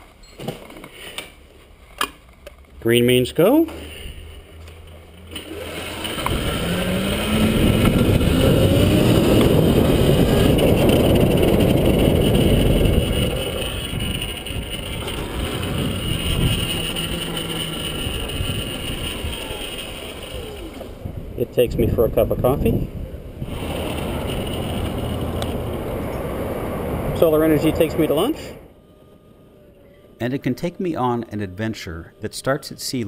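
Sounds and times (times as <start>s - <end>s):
electric motor whine: 5.1s - 21.2s, 23.4s - 32.6s
wind noise rushing: 6.2s - 17.1s.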